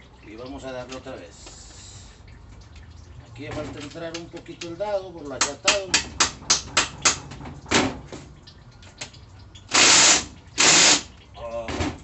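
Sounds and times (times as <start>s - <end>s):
loud bursts of noise: 9.7s - 11.1s.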